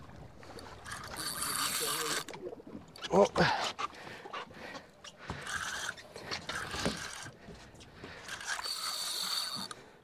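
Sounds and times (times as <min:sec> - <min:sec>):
fishing reel clicking and buzzing: 0:00.9 - 0:02.3, 0:08.2 - 0:09.8.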